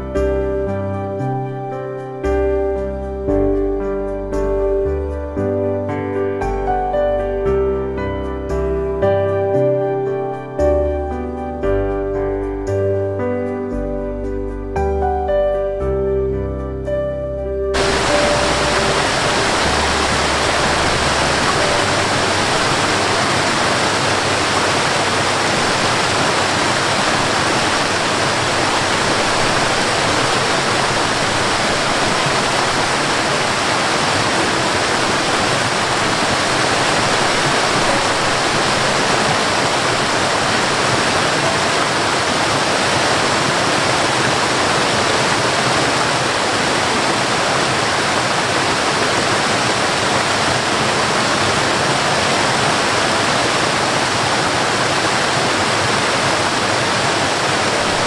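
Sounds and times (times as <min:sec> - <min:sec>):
waterfall rushing: 0:17.8 - 0:58.0.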